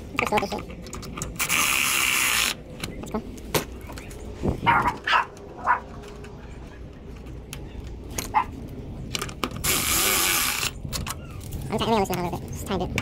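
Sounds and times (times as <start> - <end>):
metal parts clicking and knocking: 0.1 - 3.2, 9.0 - 13.0
dog barking: 4.6 - 5.9, 8.3 - 8.6.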